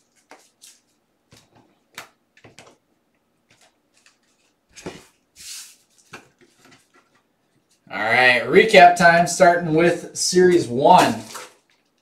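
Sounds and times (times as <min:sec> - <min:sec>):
cards clicking and tapping: 0:00.1 - 0:02.8.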